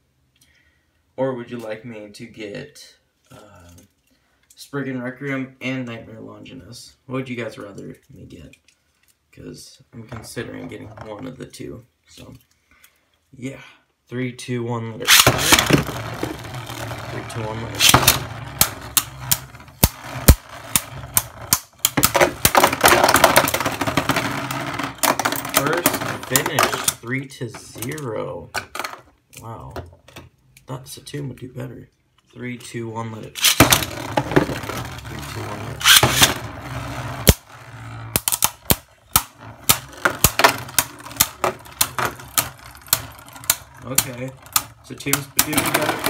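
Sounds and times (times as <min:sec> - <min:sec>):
spinning tops clacking together: 0:15.1 - 0:26.9, 0:33.4 - 0:36.4
rattle of rapid hits: 0:15.1 - 0:27.0, 0:33.4 - 0:46.0.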